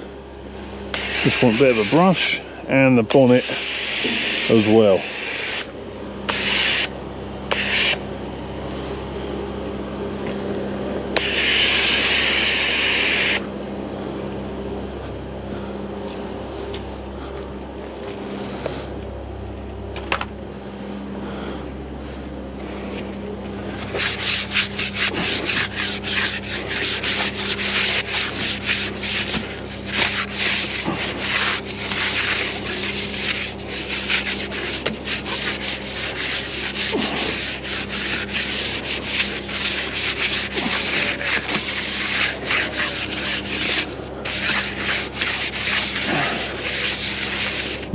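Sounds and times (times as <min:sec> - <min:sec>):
low machine hum: 0:00.0 - 0:47.9
bristle brush scrubbing wet metal: 0:00.9 - 0:02.4, 0:03.2 - 0:05.7, 0:06.3 - 0:06.9, 0:07.5 - 0:08.0, 0:11.2 - 0:13.4, 0:23.8 - 0:47.9.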